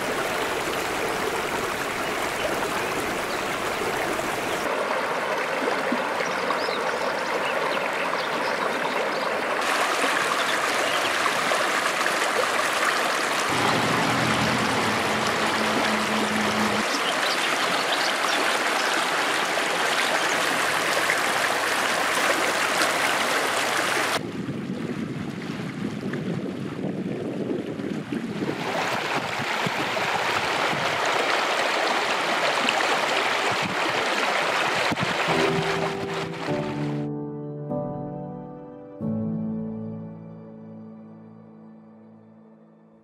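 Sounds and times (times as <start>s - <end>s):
stream rushing over rocks: 0.0s - 24.2s, 28.5s - 36.9s.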